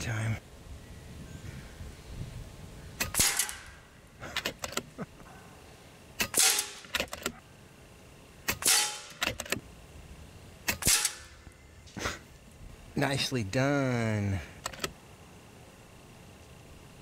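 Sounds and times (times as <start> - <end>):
suppressed rifle shots: 3.0 - 3.8, 6.2 - 7.2, 8.5 - 9.4, 10.7 - 11.4.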